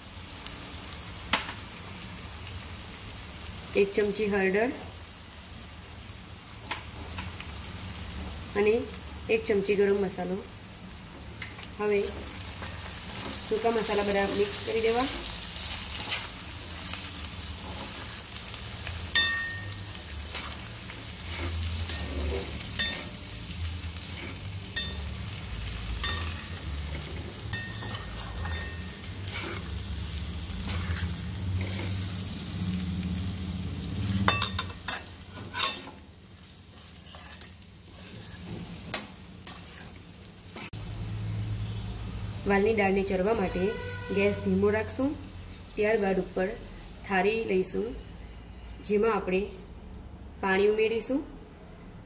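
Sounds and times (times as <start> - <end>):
food sizzling in oil: 0.0 - 49.6
metal spoon scraping pan: 13.1 - 16.4, 17.6 - 18.3, 19.1 - 23.4, 24.0 - 25.1, 25.9 - 29.8, 30.5 - 32.1, 34.1 - 36.0, 36.7 - 40.7.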